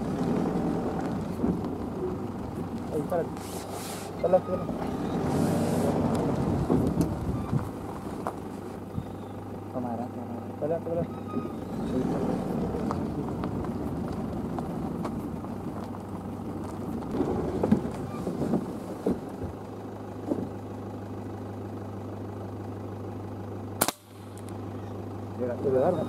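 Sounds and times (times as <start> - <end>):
pickup truck engine running: 0.0 - 26.0
sharp crack: 23.8 - 24.6.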